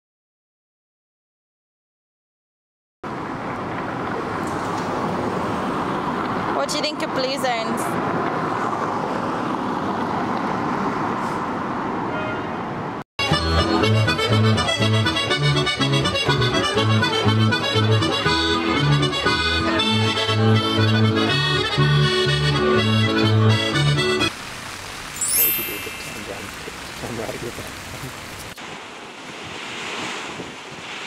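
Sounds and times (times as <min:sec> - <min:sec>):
street traffic noise: 0:03.0 - 0:30.2
background music with bass line: 0:13.2 - 0:24.3.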